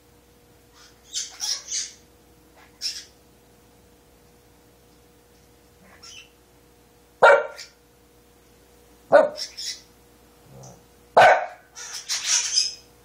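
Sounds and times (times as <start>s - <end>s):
small dog barking: 7.2s - 7.8s, 9.1s - 9.5s, 10.6s - 11.7s.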